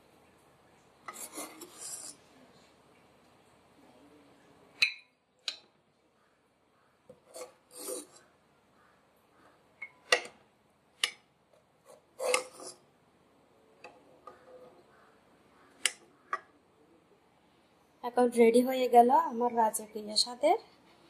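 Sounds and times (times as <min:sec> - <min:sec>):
spoon scraping through gravy: 0:01.1 - 0:02.3, 0:07.2 - 0:08.3, 0:11.8 - 0:12.8.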